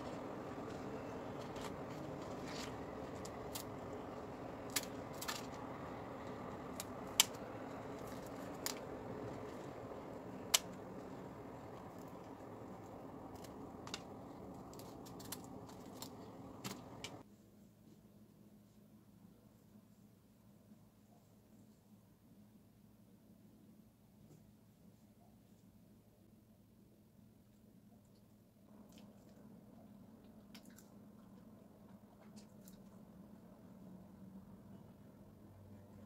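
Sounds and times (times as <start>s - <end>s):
steady low hum: 0.0s - 17.2s.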